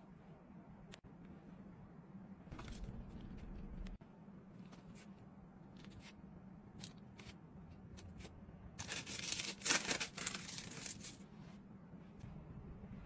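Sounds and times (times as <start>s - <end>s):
plastic film peeling rustle: 8.8s - 11.2s.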